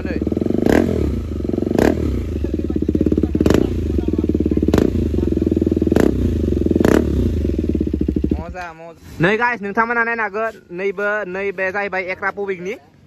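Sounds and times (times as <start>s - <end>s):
motorcycle engine idling: 0.0s - 9.0s.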